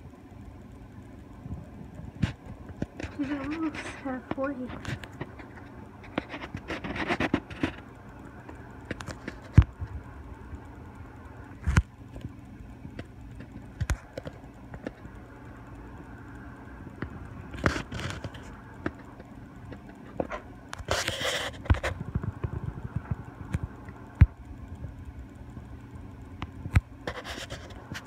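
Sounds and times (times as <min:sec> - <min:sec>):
low steady hum: 0:00.0 - 0:28.0
phone handling scratches and knocks: 0:02.2 - 0:07.9.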